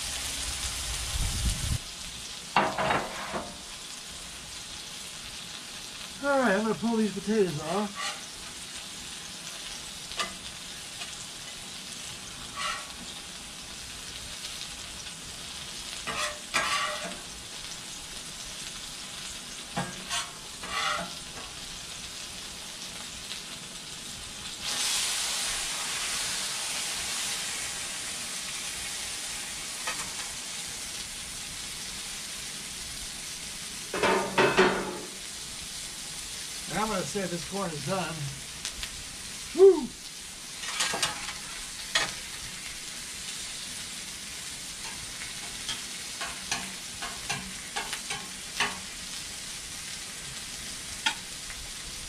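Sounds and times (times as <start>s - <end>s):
food sizzling on griddle: 0.0s - 52.0s
metal spatula scraping griddle: 2.6s - 3.6s, 7.8s - 8.5s, 12.3s - 13.2s, 16.0s - 17.3s, 19.8s - 21.6s, 40.6s - 42.2s.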